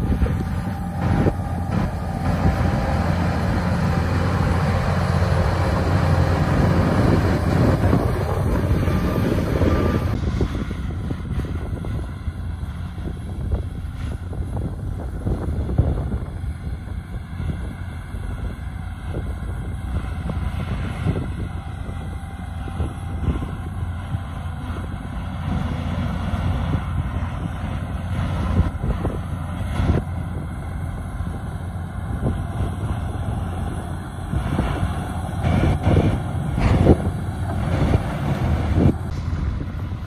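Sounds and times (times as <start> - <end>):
bulldozer diesel engine running: 0.0 - 40.0.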